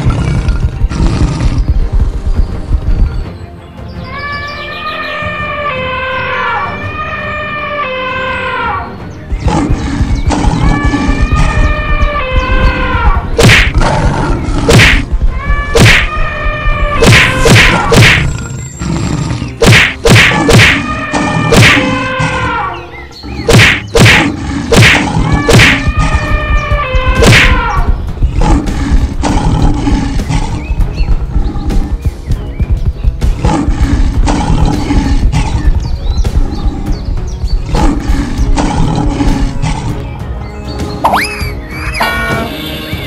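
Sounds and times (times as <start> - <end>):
background music: 0.0 - 43.0
pitched animal calls: 9.4 - 32.0
cartoon whacks and thumps: 13.4 - 13.8, 14.6 - 16.2, 17.0 - 18.3, 19.6 - 22.0, 23.5 - 26.2, 27.2 - 28.0, 41.0 - 41.4.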